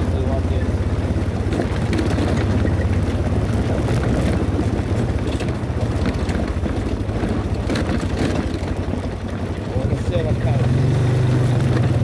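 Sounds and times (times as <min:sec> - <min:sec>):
atv engine running: 0:00.0 - 0:12.0
sharp knocks from rough ground: 0:01.4 - 0:09.8.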